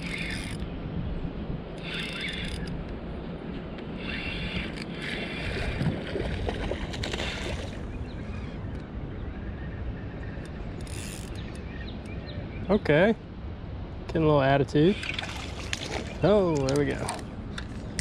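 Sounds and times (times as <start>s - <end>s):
fishing reel whirring: 0.0s - 0.6s, 1.8s - 2.8s, 4.0s - 5.8s, 10.8s - 11.4s
wind and water rush: 0.0s - 18.0s.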